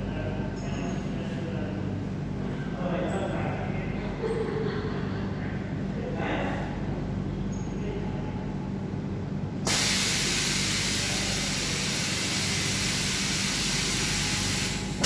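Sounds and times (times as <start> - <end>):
cleaning machine humming: 9.6 - 15.0
loud steady hiss: 9.6 - 15.0.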